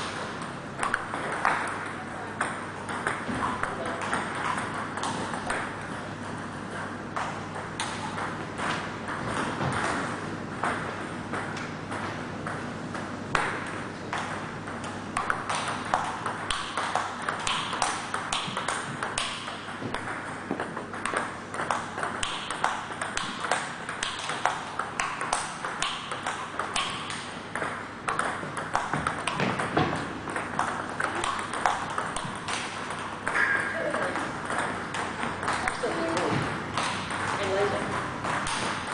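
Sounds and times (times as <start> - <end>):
table tennis ball clicks: 13.3 - 38.9.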